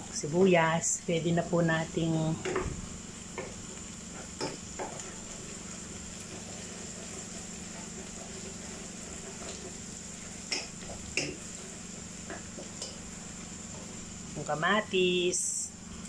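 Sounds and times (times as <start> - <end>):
onions frying hiss: 0.0 - 16.0
steady low hum: 0.0 - 16.0
spatula knocking on pan: 4.2 - 5.0, 10.5 - 11.5.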